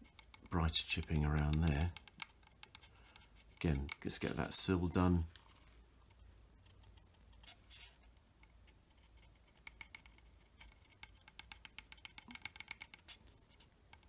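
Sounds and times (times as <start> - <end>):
pencil ticking and scratching on plastic: 0.0 - 14.0.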